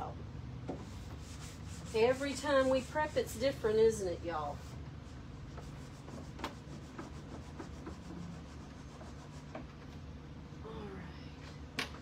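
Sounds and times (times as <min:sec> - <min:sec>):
paper towel rubbing wood: 0:00.8 - 0:03.7, 0:04.3 - 0:09.6.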